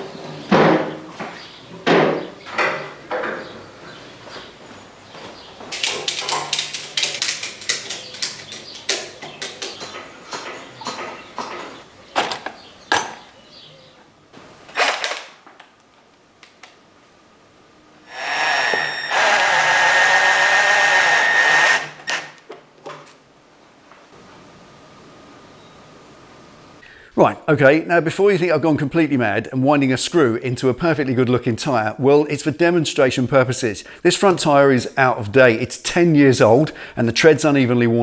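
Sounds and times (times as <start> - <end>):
cordless drill motor whine: 18.1 - 22.4.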